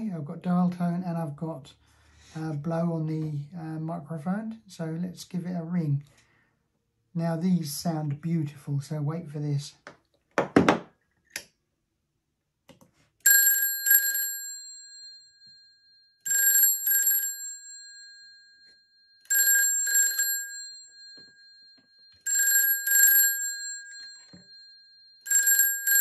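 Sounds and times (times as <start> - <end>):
telephone bell ringing: 13.2 - 26.0.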